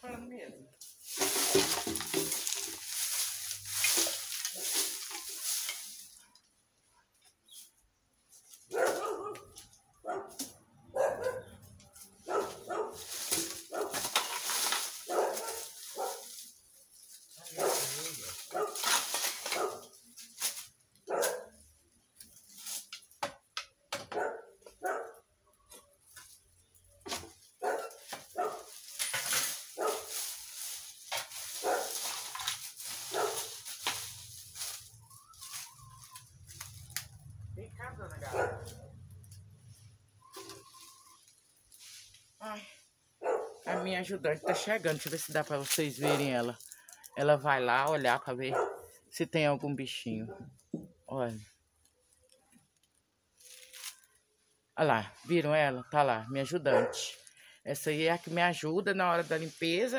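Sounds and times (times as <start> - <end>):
dry leaves rustling: 0.0 - 23.2, 24.2 - 49.1, 51.1 - 59.9
garden tool scraping dirt: 0.8 - 6.4, 11.2 - 23.2, 25.8 - 37.2
dog barking: 8.7 - 11.6, 12.2 - 13.0, 13.7 - 14.0, 15.1 - 16.3, 17.5 - 18.8, 19.5 - 19.9, 21.0 - 21.6, 24.1 - 25.2, 27.6 - 28.7, 29.8 - 30.1, 31.6 - 32.0, 33.1 - 33.5, 38.3 - 38.9, 43.2 - 44.7, 48.5 - 48.9, 56.7 - 57.1.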